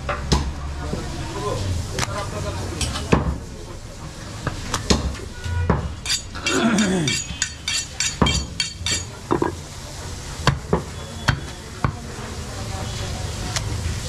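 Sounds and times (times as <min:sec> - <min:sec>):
knife honed on sharpening steel: 0:06.0 - 0:09.5.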